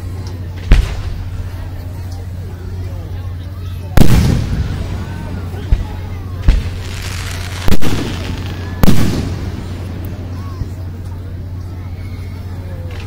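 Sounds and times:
fireworks bursting: 0.6s - 1.8s, 4.0s - 11.3s.

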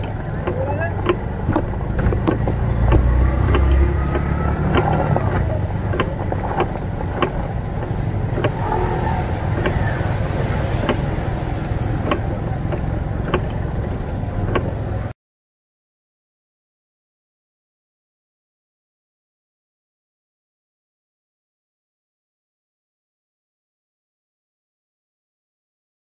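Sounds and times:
rickshaw engine running: 0.0s - 15.1s
tyres hissing through water: 0.0s - 15.1s.

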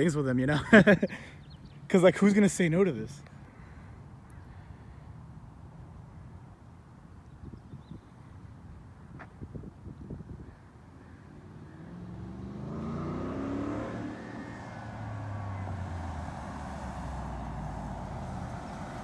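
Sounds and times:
road noise: 0.0s - 19.0s
truck engine accelerating: 11.7s - 19.0s.

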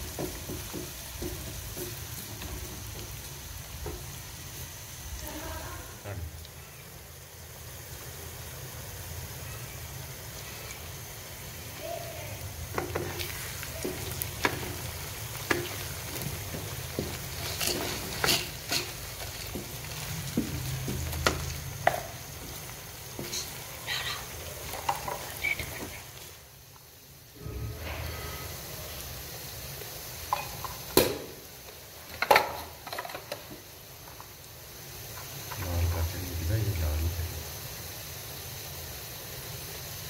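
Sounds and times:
onions sizzling in hot oil: 0.0s - 40.0s
wooden spatula scraping a wok: 12.6s - 26.4s.

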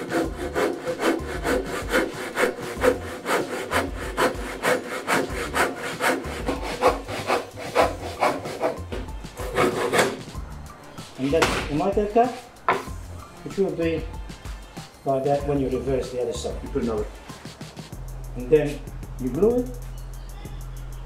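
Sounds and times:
handsaw cutting timber: 0.0s - 10.3s.

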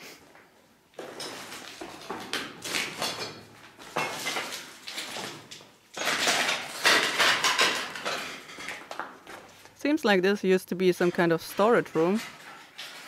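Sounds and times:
footsteps crunching over rubble: 0.2s - 9.8s.

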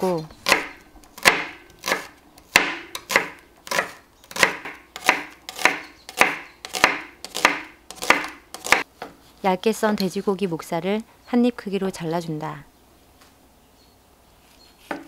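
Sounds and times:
knife chopping on wooden board: 0.1s - 8.9s.

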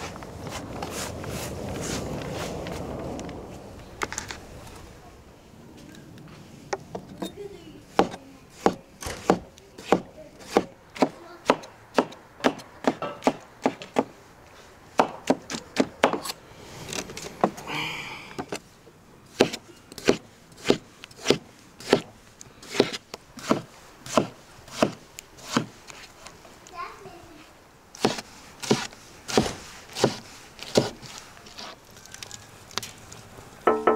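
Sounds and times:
knife knocking on wooden board: 33.7s - 33.9s.

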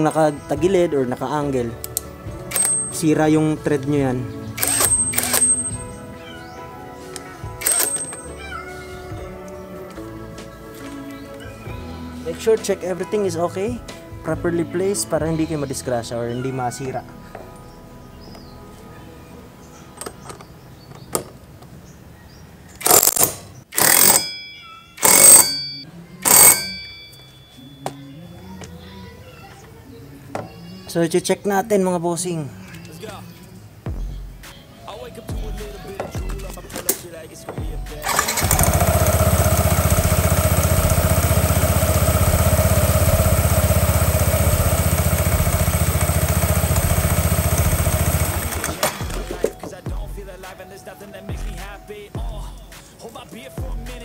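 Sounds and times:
impact wrench hammering: 2.5s - 3.0s, 4.6s - 5.9s, 7.6s - 8.3s, 22.8s - 24.4s, 25.0s - 27.2s
thin metallic ring: 23.8s - 28.1s
drive belt whine: 38.0s - 49.4s
scooter engine idling: 38.0s - 49.5s.

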